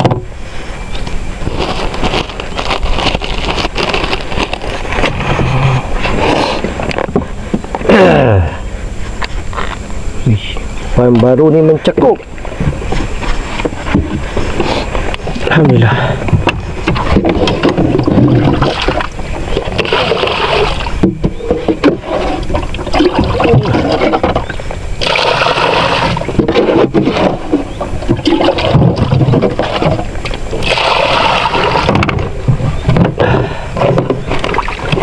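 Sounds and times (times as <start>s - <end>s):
water splashing beside boat: 10.9s - 35.0s.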